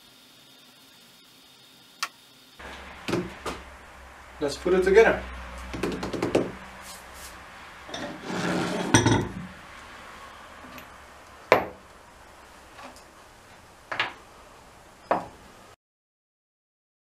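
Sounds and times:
metal parts rustling and scraping: 7.9s - 9.4s.

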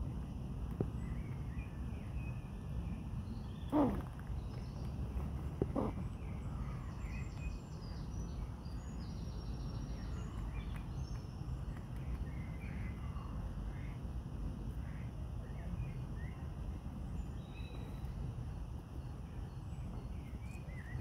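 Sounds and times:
faint bird chirps: 0.9s - 11.4s.

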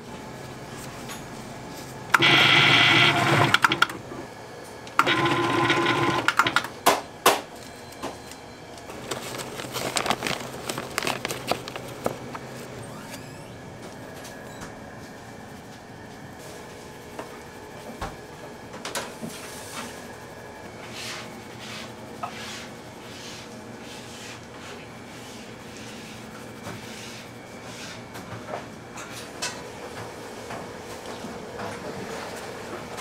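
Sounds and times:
small motor running: 2.1s - 4.0s, 9.0s - 13.7s.

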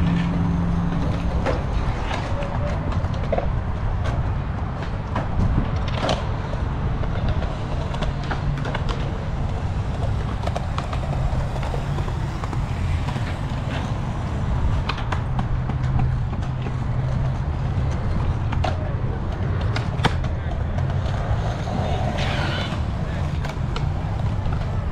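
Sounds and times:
skateboard wheels rolling on concrete: 0.0s - 24.9s
skateboards clacking on ground: 0.0s - 24.9s.

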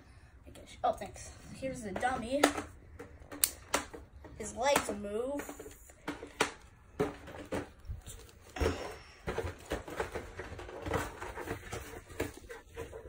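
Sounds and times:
rustling: 5.4s - 13.0s.

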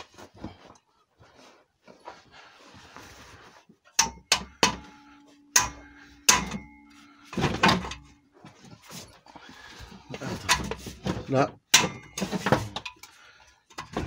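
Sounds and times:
hammer striking metal: 4.0s - 6.9s, 11.7s - 12.2s
faint metallic ringing: 4.0s - 9.1s.

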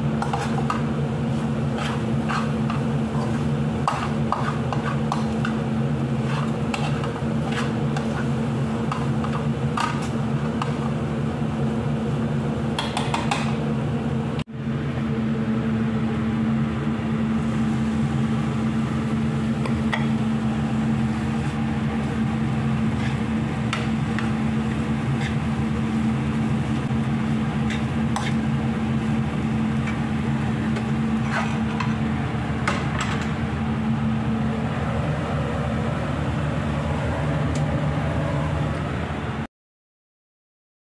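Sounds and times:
low mechanical hum: 0.0s - 39.5s
utensil scraping frying pan: 0.2s - 11.0s, 21.4s - 26.0s, 27.5s - 32.1s.

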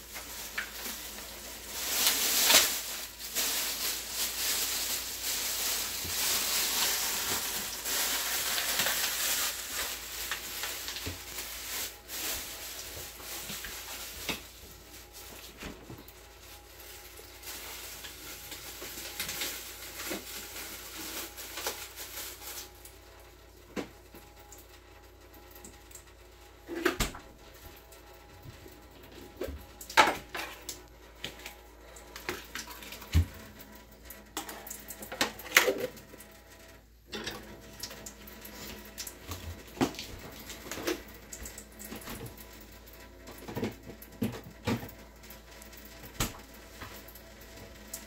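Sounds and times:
utensils and dishes clicking: 37.1s - 38.2s.

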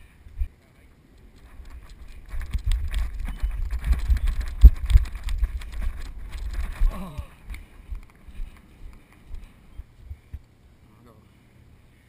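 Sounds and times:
running footsteps on grass: 1.2s - 10.4s.

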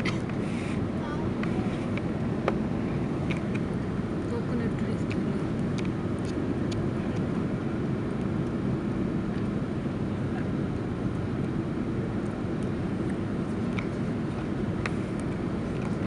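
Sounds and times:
airplane engines rumbling in cabin: 0.0s - 16.0s.

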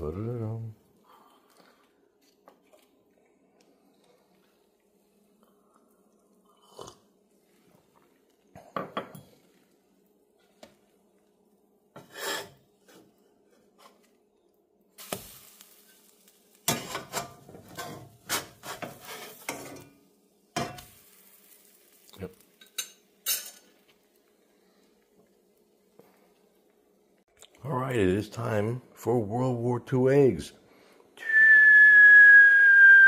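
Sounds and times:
spatula scraping a frying pan: 12.0s - 14.1s, 16.7s - 20.0s.

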